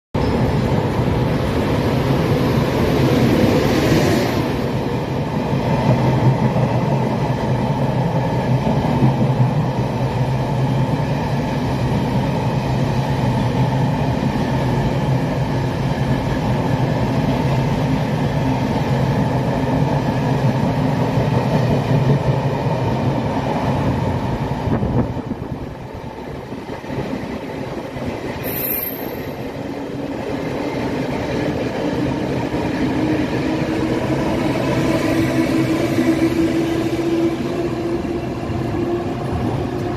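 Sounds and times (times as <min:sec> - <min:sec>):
train rumbling through station: 0:00.1 - 0:39.9
high squeal falling in pitch: 0:28.4 - 0:29.5.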